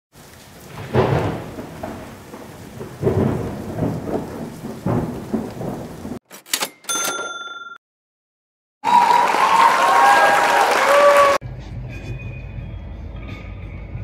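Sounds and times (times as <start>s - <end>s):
steady rain: 0.1s - 6.2s
rolling thunder: 0.5s - 6.2s.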